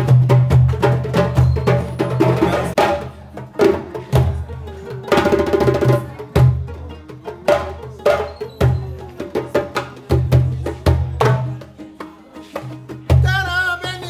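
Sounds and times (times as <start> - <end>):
stringed instrument playing: 0.0 - 14.0.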